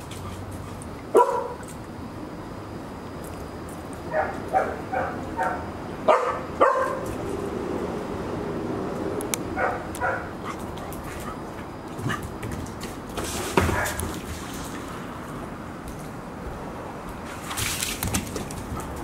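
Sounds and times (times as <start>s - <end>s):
puppy barking in high yips: 1.1s - 1.6s, 4.1s - 7.1s, 9.6s - 10.3s.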